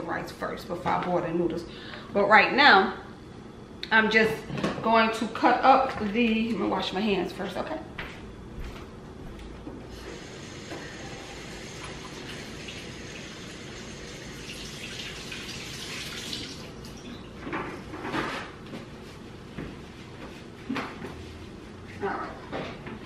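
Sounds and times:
faucet running into sink: 10.2s - 17.2s.

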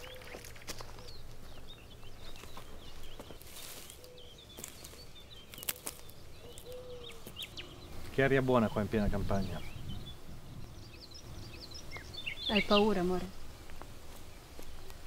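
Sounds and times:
footsteps: 0.0s - 8.4s, 13.6s - 15.0s
small birds chirping: 0.0s - 15.0s.

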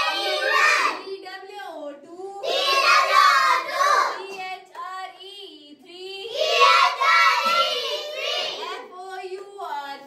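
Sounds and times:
children singing: 0.0s - 1.2s, 2.4s - 4.4s, 6.3s - 8.9s.

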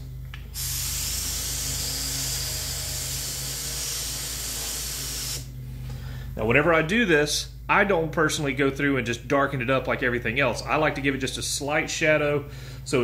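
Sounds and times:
spray gun hissing: 0.6s - 5.5s.

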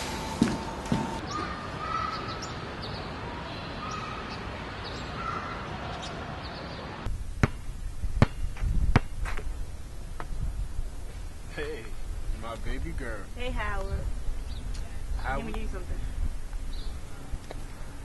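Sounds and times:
steady background hiss: 6.2s - 18.0s
basketball bouncing on asphalt: 7.4s - 9.5s.

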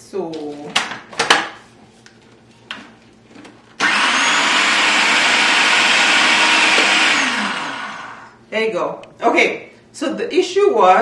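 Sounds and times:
food processor motor whirring: 3.8s - 8.4s.

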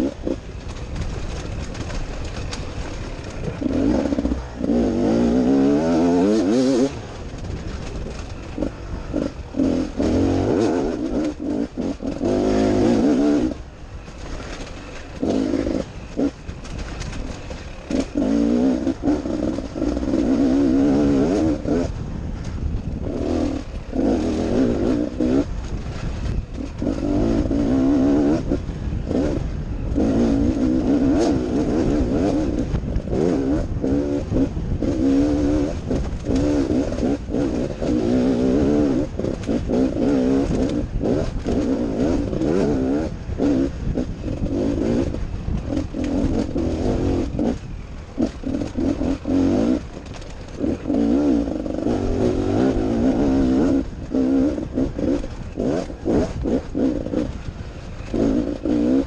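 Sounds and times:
dirt bike engine revving: 0.0s - 59.0s
rattling clatter: 0.0s - 59.0s
wind rumble on microphone: 0.0s - 59.0s.

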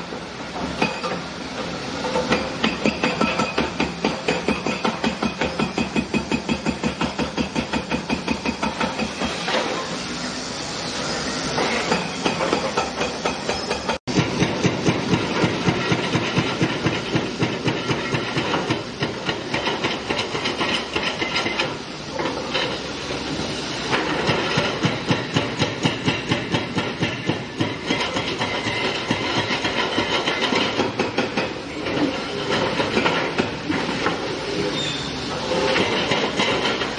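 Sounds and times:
hydraulic breaker hammering concrete: 2.1s - 9.7s, 11.6s - 21.8s, 23.9s - 31.6s.

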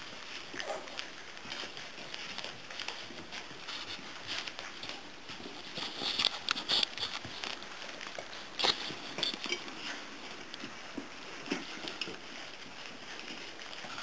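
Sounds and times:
puppies lapping from metal bowl: 0.0s - 14.0s.

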